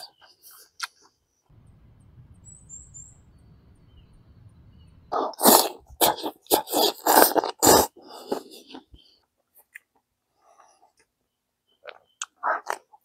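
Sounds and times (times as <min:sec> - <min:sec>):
high bird chirps: 0:01.6 - 0:05.2
man slurping noodles: 0:05.1 - 0:08.9.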